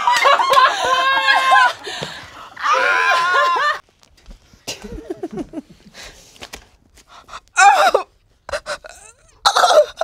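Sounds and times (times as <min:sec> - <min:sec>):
woman squealing laugh: 0:02.6 - 0:03.8.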